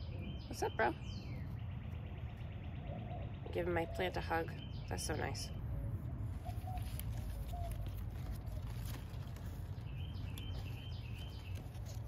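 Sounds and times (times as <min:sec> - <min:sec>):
plant rustling and clicks: 0:06.4 - 0:12.0.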